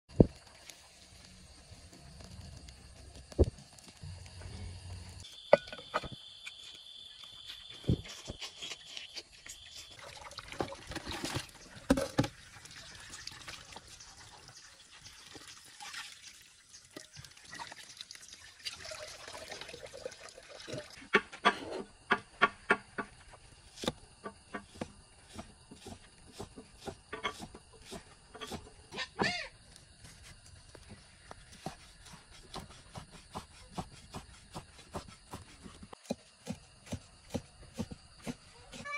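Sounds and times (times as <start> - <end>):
wood fire crackling and popping: 0.1 - 5.3
water trickling into basin: 9.7 - 21.1
cleaver chopping on wooden block: 32.5 - 38.9.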